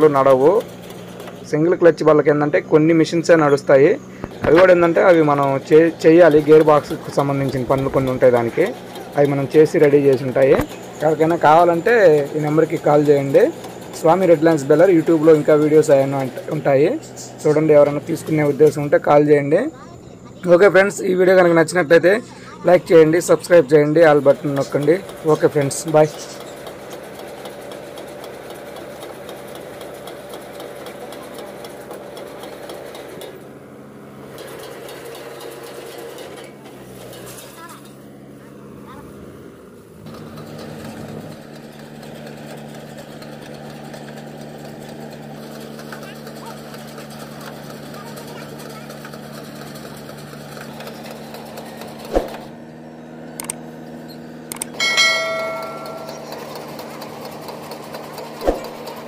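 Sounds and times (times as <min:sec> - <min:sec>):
baler mechanical ticking: 0:00.0 - 0:33.4, 0:54.5 - 0:59.0
tractor engine running: 0:00.0 - 0:59.0
notification bell chime: 0:54.8 - 0:56.6
sharp thump: 0:58.4 - 0:58.8.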